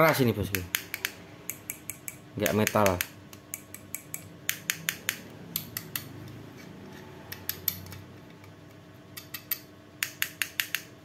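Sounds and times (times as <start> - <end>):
plastic housing clicks and taps: 7.3 - 10.9.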